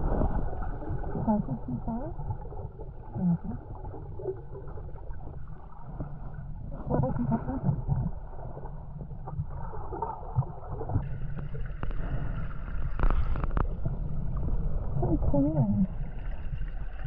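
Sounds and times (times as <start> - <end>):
motorboat engine rumble: 6.6 - 8.3.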